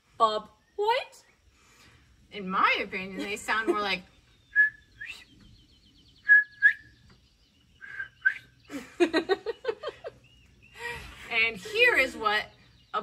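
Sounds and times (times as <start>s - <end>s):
person whistling bird call: 4.5s - 5.3s, 6.2s - 6.9s, 7.8s - 8.5s.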